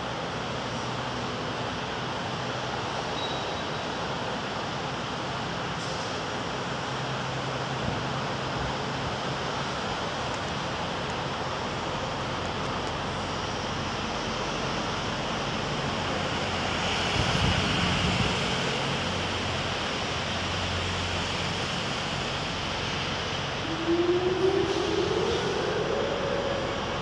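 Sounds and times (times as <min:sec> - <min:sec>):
rising whine: 0:22.2 - 0:27.0
wind rushing: 0:23.5 - 0:27.0.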